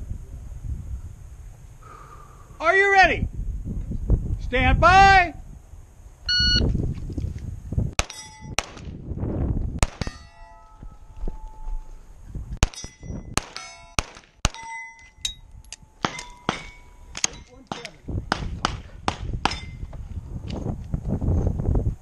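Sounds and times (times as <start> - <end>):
steel target ringing: 8.0 - 8.6, 9.9 - 17.6, 19.4 - 19.8
pistol shots: 8.0 - 8.9, 9.8 - 10.3, 12.6 - 14.7, 16.0 - 19.8.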